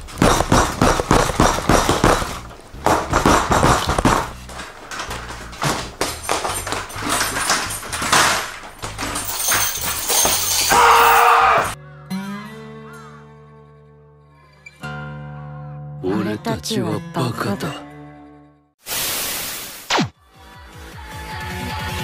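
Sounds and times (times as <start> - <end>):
crashing and thudding: 0.0 - 11.7
man shouting: 10.7 - 11.8.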